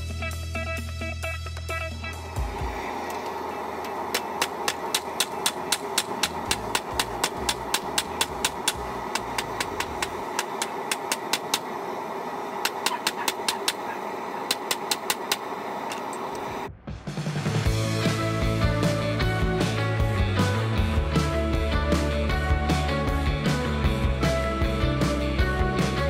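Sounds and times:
hammer striking metal on anvil: 4.4s - 11.6s.

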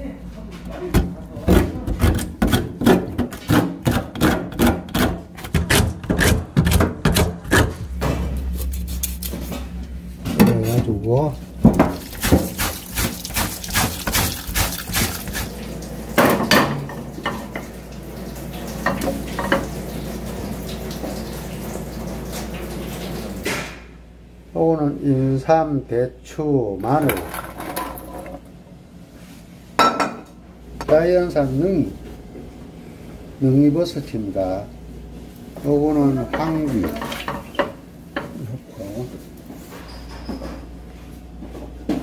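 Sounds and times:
knife cutting and scraping: 2.0s - 9.7s, 12.1s - 15.5s
tap water running into sink: 11.7s - 23.5s.

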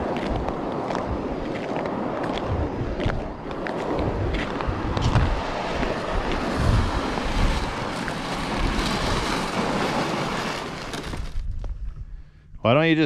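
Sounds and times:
wind buffeting microphone: 0.0s - 13.0s
ice auger drilling: 7.1s - 11.4s.

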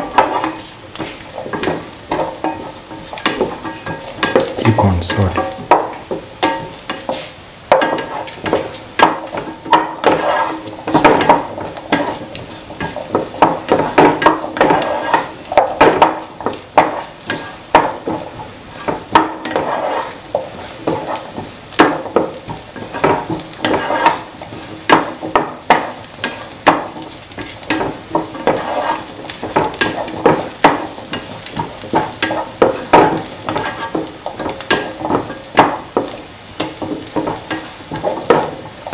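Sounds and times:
spatula scraping a pan: 0.0s - 4.6s, 6.5s - 38.9s
onions sizzling in a pan: 0.0s - 38.9s.

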